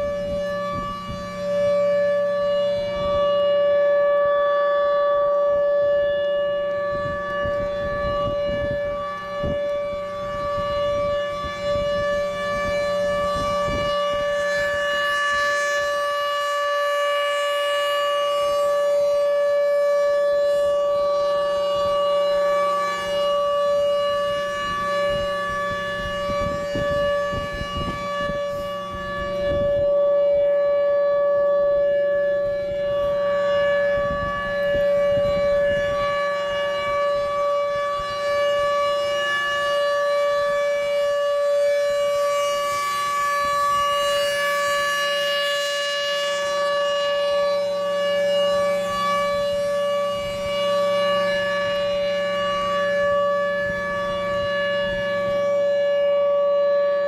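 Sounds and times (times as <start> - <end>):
warning siren steady tone: 0.0 - 57.0.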